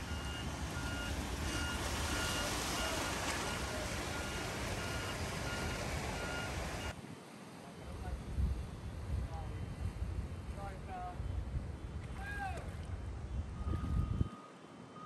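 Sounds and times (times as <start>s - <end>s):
floodwater rushing and splashing: 0.0s - 7.0s.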